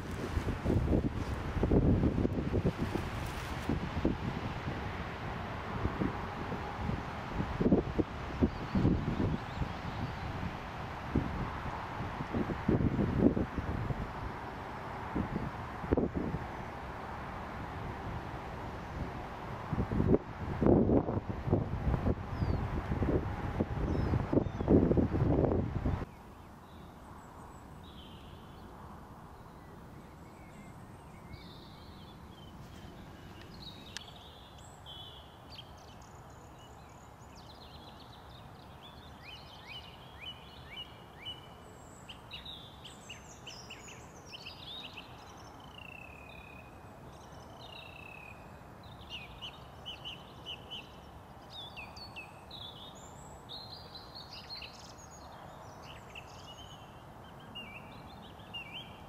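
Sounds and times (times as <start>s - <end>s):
songbirds singing: 7.8s - 11.2s, 22.3s - 23.2s, 23.8s - 59.0s.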